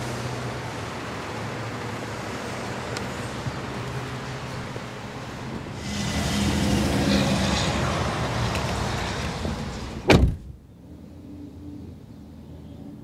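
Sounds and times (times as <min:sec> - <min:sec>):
traffic noise: 0:00.0 - 0:13.0
car door shutting: 0:09.5 - 0:10.6.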